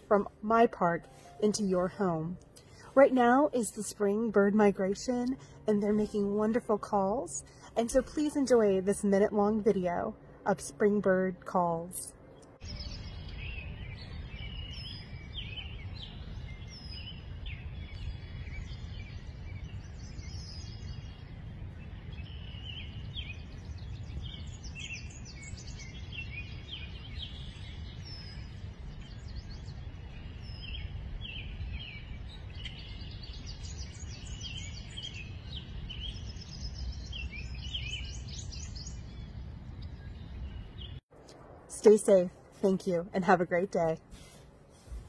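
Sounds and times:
songbirds chirping and trilling: 0:00.0 - 0:45.0
low rumble: 0:12.1 - 0:41.7.

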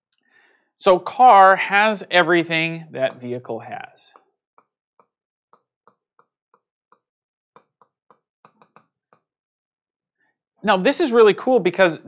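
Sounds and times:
taps and clicks on touchscreen: 0:03.0 - 0:03.4, 0:04.1 - 0:09.4.

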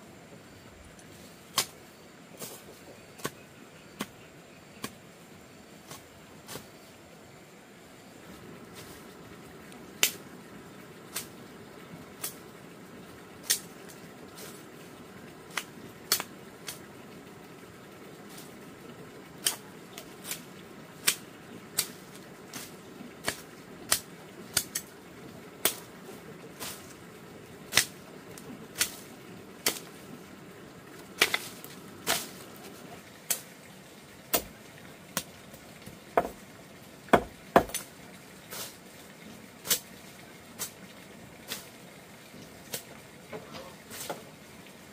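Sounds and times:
faint steady hiss: 0:00.0 - 0:44.9
sharp knocks: 0:36.2 - 0:36.4, 0:37.1 - 0:37.8.

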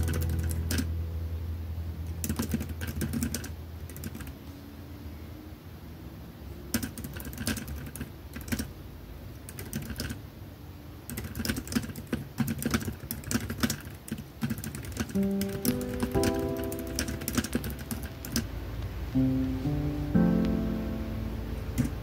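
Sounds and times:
keyboard typing: 0:00.0 - 0:00.9, 0:02.2 - 0:04.4, 0:06.7 - 0:08.7, 0:09.5 - 0:10.2, 0:11.1 - 0:18.5, 0:21.7 - 0:22.0
plucked guitar background music: 0:00.0 - 0:01.4, 0:15.2 - 0:18.2, 0:19.2 - 0:22.0.

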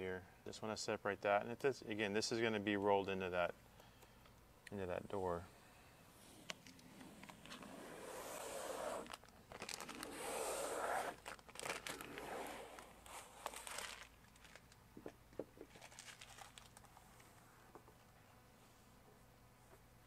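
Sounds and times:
paper tape rustling and tearing: 0:07.2 - 0:14.8, 0:15.7 - 0:17.0.

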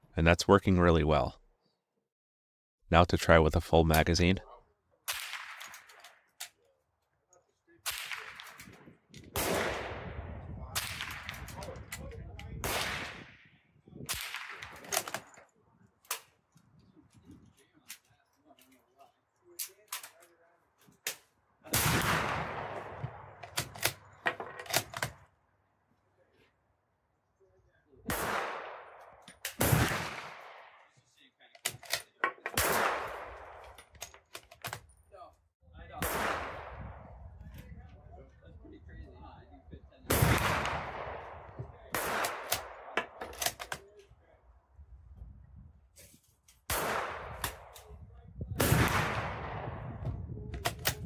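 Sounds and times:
gunshots with echo: 0:07.8 - 0:11.9, 0:12.6 - 0:15.3, 0:21.7 - 0:24.0, 0:28.1 - 0:30.8, 0:32.5 - 0:33.7, 0:36.0 - 0:37.2, 0:40.1 - 0:43.2, 0:46.7 - 0:47.7, 0:48.6 - 0:50.0
rifle bolt clicks: 0:23.4 - 0:25.2, 0:31.6 - 0:32.5, 0:42.2 - 0:43.9, 0:50.5 - 0:51.0.

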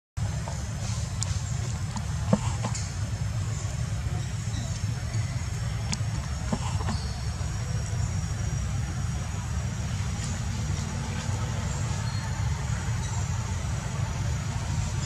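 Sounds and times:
faint high chirps: 0:02.6 - 0:09.6.

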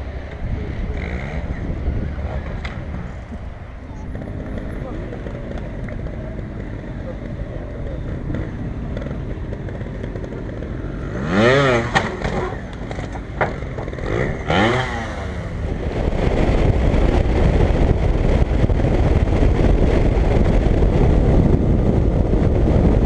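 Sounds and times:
motorcycle riding: 0:00.0 - 0:23.0
road noise: 0:00.0 - 0:23.0
rushing wind: 0:00.0 - 0:23.0
engine revving: 0:00.8 - 0:03.0, 0:07.9 - 0:19.8.

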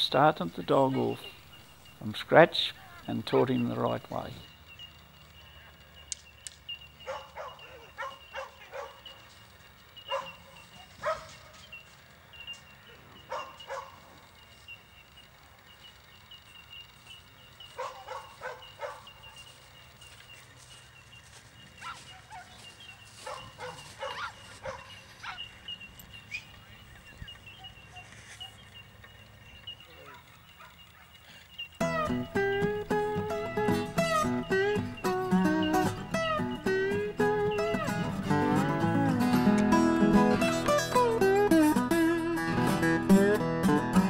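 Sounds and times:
dog barking: 0:07.0 - 0:09.2, 0:10.1 - 0:11.5, 0:13.2 - 0:14.0, 0:17.8 - 0:19.4, 0:21.8 - 0:22.6, 0:23.2 - 0:25.5, 0:30.0 - 0:31.1.

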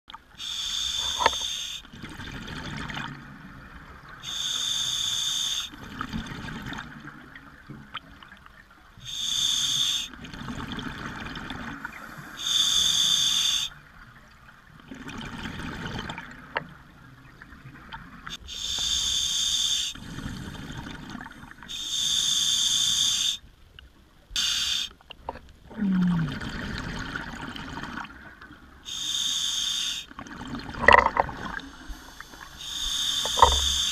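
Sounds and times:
regulator hissing inhale: 0:00.4 - 0:01.9, 0:04.2 - 0:05.8, 0:09.0 - 0:10.1, 0:11.8 - 0:13.8, 0:18.3 - 0:20.4, 0:21.7 - 0:23.4, 0:24.4 - 0:25.0, 0:28.9 - 0:30.2, 0:31.6 - 0:33.9
rumble of exhaled bubbles: 0:01.9 - 0:04.1, 0:10.2 - 0:12.4, 0:25.3 - 0:28.4, 0:30.2 - 0:33.9.

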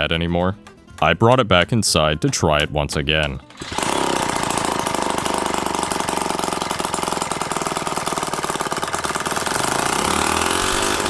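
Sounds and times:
two-stroke engine buzzing rasp: 0:03.4 - 0:11.0.

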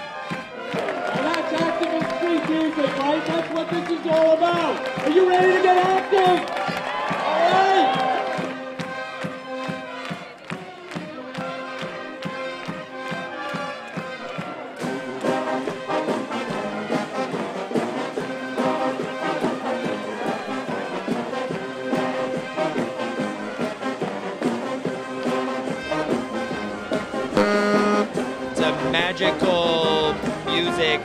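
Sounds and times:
brass band horns playing: 0:00.0 - 0:31.0
percussive beat: 0:10.5 - 0:31.0.

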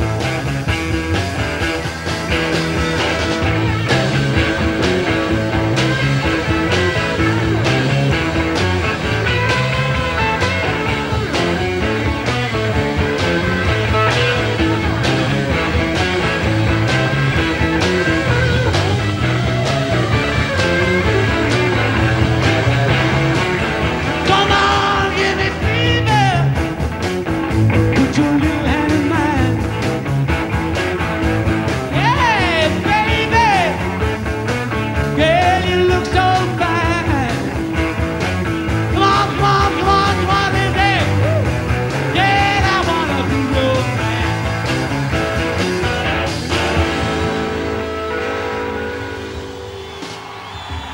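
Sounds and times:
steady drum beat: 0:00.0 - 0:48.4
electric guitars: 0:00.0 - 0:50.9
man singing: 0:24.1 - 0:26.7, 0:27.9 - 0:29.8, 0:31.9 - 0:34.0, 0:35.2 - 0:37.6, 0:38.8 - 0:44.4.

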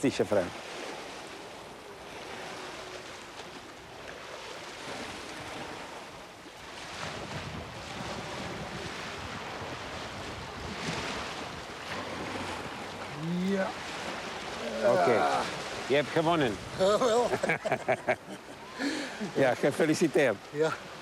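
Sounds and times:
waves washing against stony shore: 0:00.0 - 0:21.0
wind buffeting microphone: 0:04.8 - 0:17.6.

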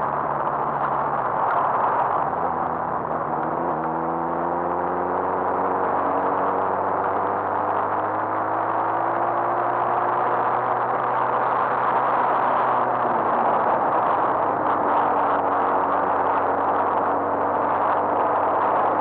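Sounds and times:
wind and road rush: 0:00.0 - 0:19.0.

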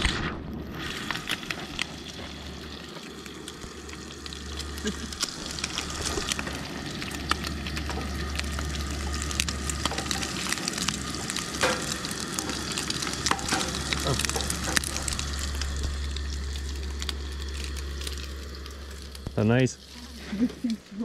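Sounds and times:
low hum: 0:00.0 - 0:21.0
food sizzling in frying pan: 0:00.7 - 0:21.0.

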